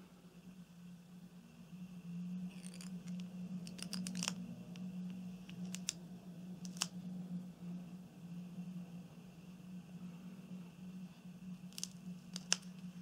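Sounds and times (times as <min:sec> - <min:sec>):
steady low hum: 0:00.0 - 0:13.0
plastic clicks and scratchy crackles: 0:02.5 - 0:04.9, 0:05.5 - 0:06.0, 0:06.6 - 0:07.0, 0:11.7 - 0:12.9.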